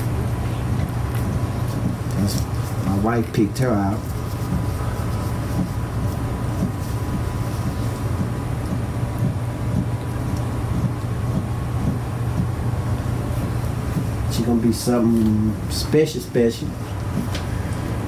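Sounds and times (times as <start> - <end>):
appliance humming: 0.0 - 18.0.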